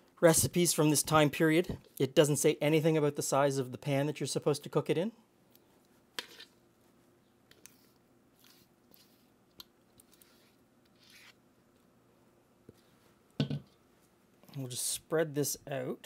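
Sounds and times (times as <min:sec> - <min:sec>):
spatula scraping batter in bowl: 0:10.0 - 0:11.4.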